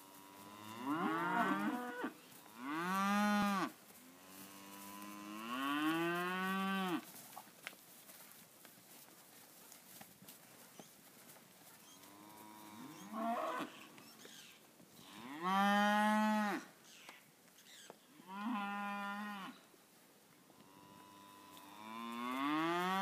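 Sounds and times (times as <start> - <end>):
cows mooing: 0.3 - 7.0, 12.2 - 13.7.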